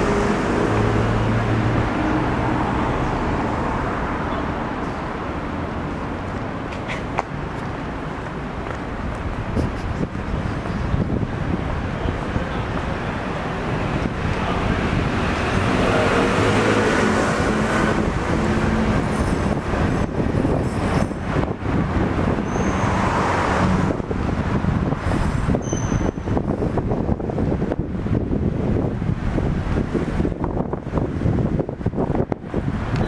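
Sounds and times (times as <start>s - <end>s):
vehicle passing loudly: 0.0s - 6.6s, 9.4s - 32.9s
city street traffic: 0.0s - 33.0s.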